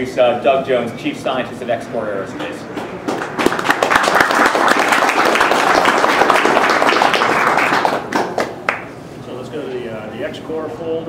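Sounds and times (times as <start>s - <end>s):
audience applauding: 2.9s - 8.9s.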